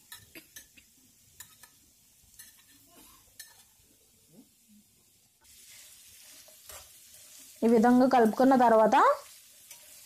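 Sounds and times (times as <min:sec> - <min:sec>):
meat sizzling in oil: 0:00.0 - 0:10.0.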